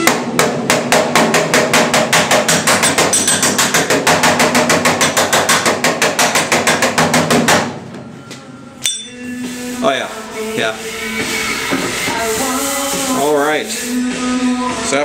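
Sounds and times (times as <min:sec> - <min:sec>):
air hammer tapping on metal: 0:00.0 - 0:07.7.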